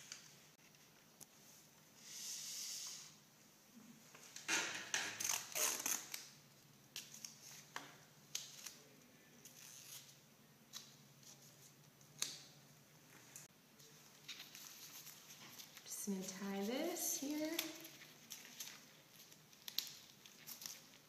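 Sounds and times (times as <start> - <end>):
packaging crinkling: 17.3 - 21.0.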